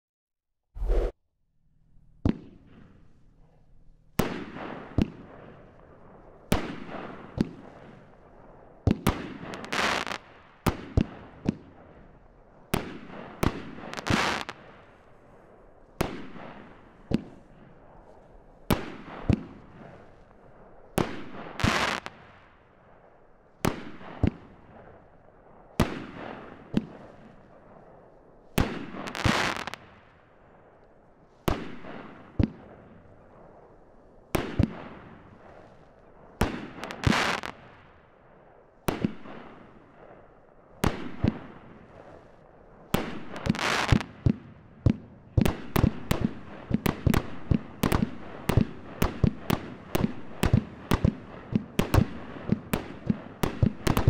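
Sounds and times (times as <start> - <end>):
firework bursts with crackle: 8.9 - 12.0, 12.8 - 15.0, 21.0 - 22.5, 28.6 - 30.2, 34.4 - 38.0, 38.9 - 54.0.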